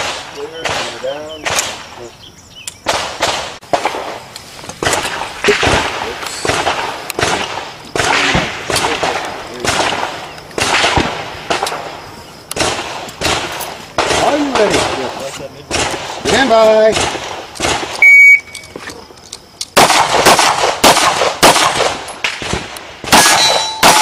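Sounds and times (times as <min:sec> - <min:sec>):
handgun shots: 0:02.8 - 0:04.0, 0:19.7 - 0:24.0.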